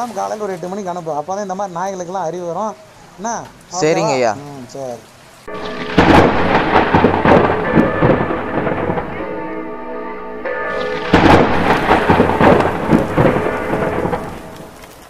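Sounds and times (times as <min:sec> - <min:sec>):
rain: 0:00.0 - 0:15.0
held musical chord: 0:05.5 - 0:15.0
thunder: 0:05.5 - 0:15.0.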